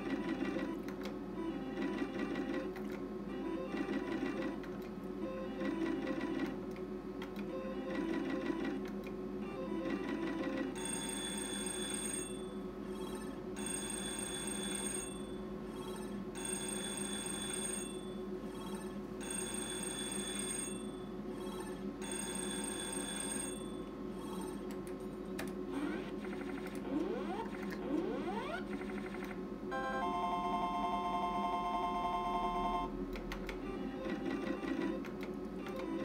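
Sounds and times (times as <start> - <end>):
steady low hum: 0.0 - 36.0
slot machine win bell: 10.8 - 18.2, 19.2 - 21.1, 22.0 - 23.9.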